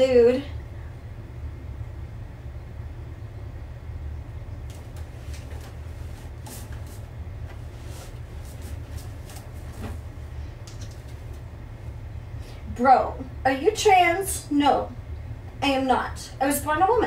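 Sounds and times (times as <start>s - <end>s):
steady low hum: 0.0s - 17.0s
soft clicks and rustles: 4.6s - 11.5s.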